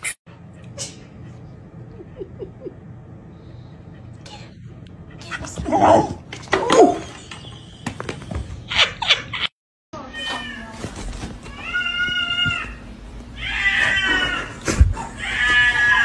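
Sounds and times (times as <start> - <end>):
cat meowing loudly: 13.4 - 14.6.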